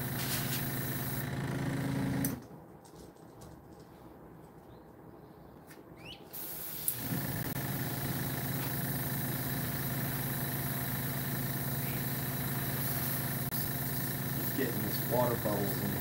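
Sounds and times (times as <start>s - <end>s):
air hissing: 0.0s - 1.2s, 6.3s - 16.0s
airbrush compressor humming: 0.0s - 2.4s, 6.7s - 16.0s.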